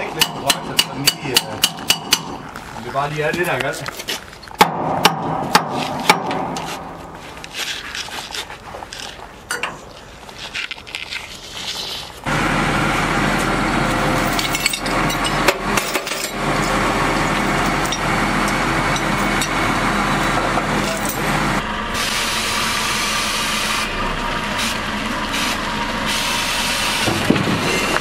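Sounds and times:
vehicle engine humming: 0.0 - 10.8, 11.4 - 28.0
metal tools clinking: 14.1 - 18.1, 20.8 - 21.3.

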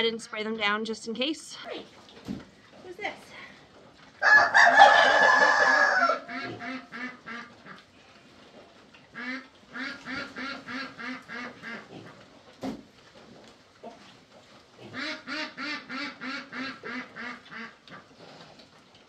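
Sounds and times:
pig squealing: 4.2 - 7.7
pigs grunting: 5.2 - 12.5, 13.3 - 18.8.

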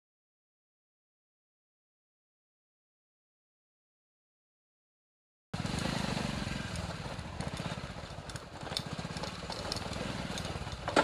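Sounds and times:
motorcycle engine at low speed: 5.6 - 11.0
bike clicks and rattles: 6.6 - 11.0.

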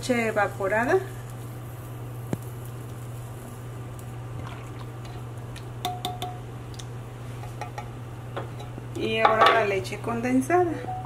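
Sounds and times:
steady low hum: 0.0 - 11.0
can clinking against pot: 5.8 - 6.4.

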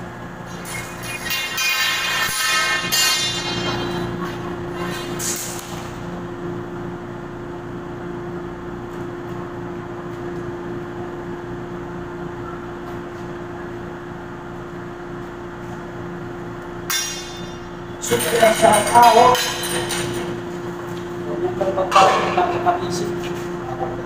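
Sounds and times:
ventilation machine hum: 0.0 - 24.0.

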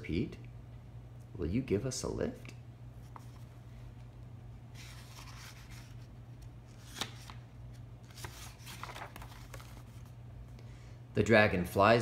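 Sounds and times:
low steady hum: 0.0 - 12.0
hand rustling paper pages: 3.0 - 3.6, 4.7 - 10.2.

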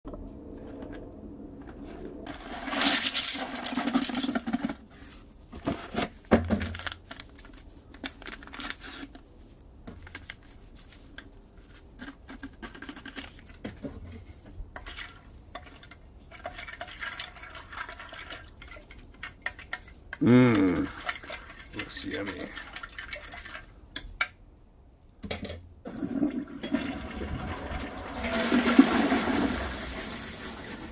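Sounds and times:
paper packet rustling: 1.8 - 13.4
plastic spoon stirring in water: 10.0 - 23.8.

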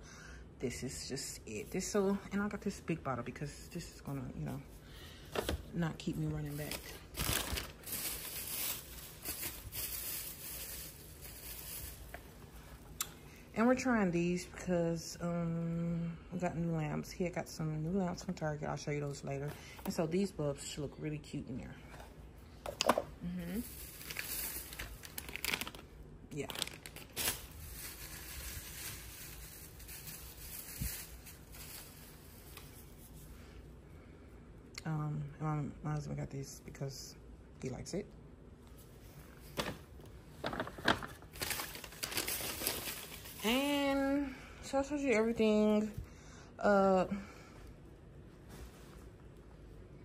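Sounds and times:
shopping bags rustling: 5.4 - 12.8, 23.5 - 33.0, 39.3 - 44.3.

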